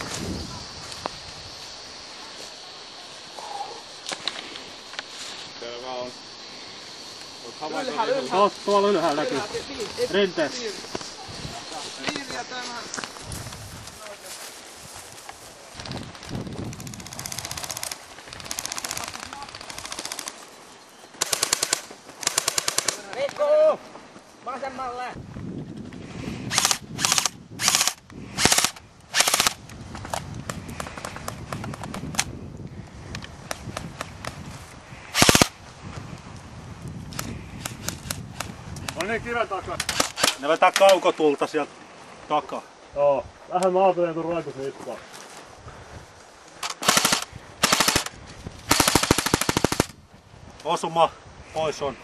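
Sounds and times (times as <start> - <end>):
airsoft rifle bursts: 17.0 - 20.4, 21.2 - 23.3, 26.5 - 29.6, 35.1 - 35.6, 39.8 - 40.4, 46.6 - 48.1, 48.7 - 49.9.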